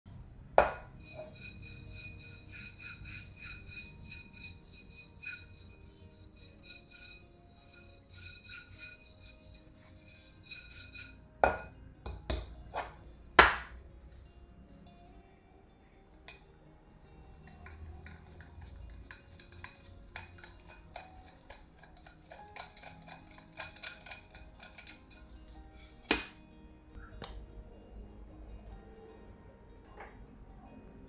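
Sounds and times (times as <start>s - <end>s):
light background music: 0.1s - 31.0s
frying pan knocking on table: 0.6s - 0.9s.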